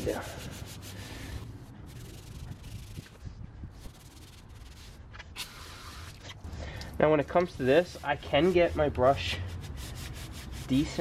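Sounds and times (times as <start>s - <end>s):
brush scrubbing a wheel: 0.0s - 3.2s, 3.8s - 5.0s, 7.2s - 11.0s.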